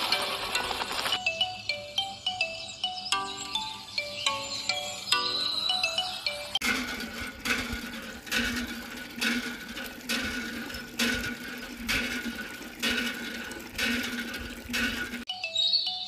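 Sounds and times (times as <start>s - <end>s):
small pump humming: 6.3s - 15.3s
water splashing: 6.6s - 15.3s.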